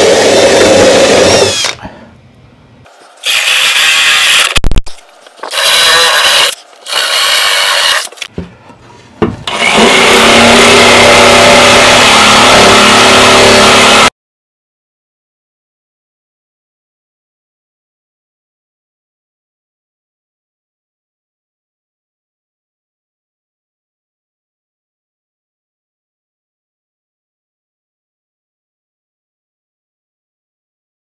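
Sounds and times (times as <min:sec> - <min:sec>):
drill boring through plywood: 0:00.0 - 0:01.8, 0:03.2 - 0:04.6, 0:05.5 - 0:08.1, 0:09.5 - 0:14.1
power tool running: 0:00.0 - 0:01.8, 0:03.2 - 0:04.6, 0:05.4 - 0:08.2, 0:09.4 - 0:14.1.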